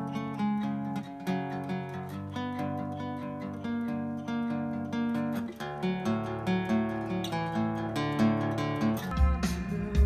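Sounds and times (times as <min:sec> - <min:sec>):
acoustic guitar chords: 0:00.0 - 0:10.0.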